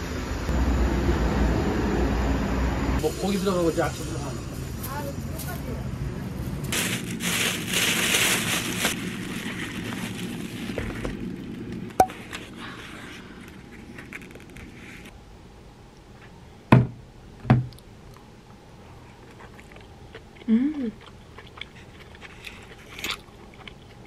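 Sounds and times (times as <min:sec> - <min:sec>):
plastic bag crinkling: 0:06.7 - 0:12.7.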